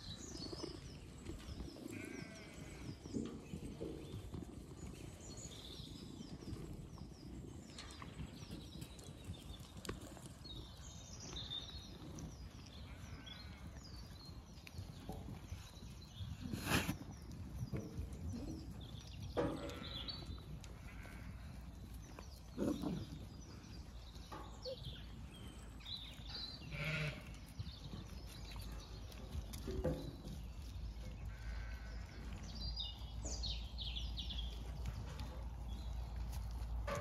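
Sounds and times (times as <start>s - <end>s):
animals crunching feed at trough: 0.0s - 37.0s
sheep bleating: 1.9s - 2.8s, 26.7s - 27.3s.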